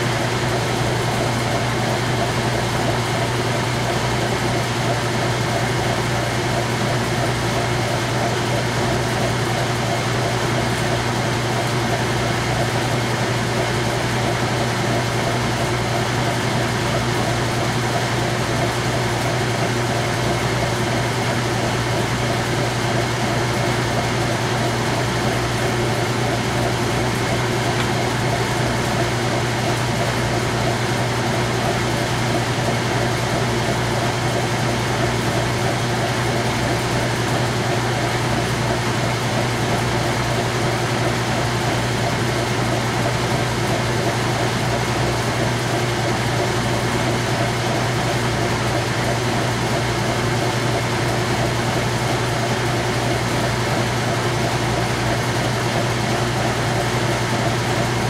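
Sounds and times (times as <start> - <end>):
washing machine spinning: 0.0 - 58.0.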